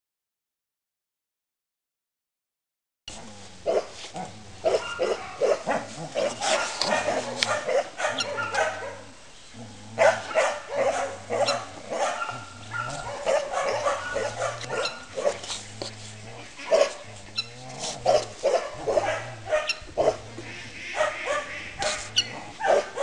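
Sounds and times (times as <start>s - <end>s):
puppy yipping and barking: 6.2s - 9.0s, 10.0s - 15.4s, 18.1s - 20.2s.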